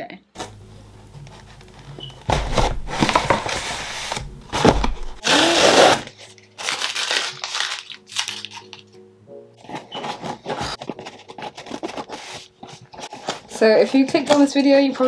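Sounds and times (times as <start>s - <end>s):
cardboard box scraping and rustling: 0.4s - 6.1s, 9.6s - 13.8s
packing tape tearing: 0.4s - 9.0s, 9.6s - 14.6s.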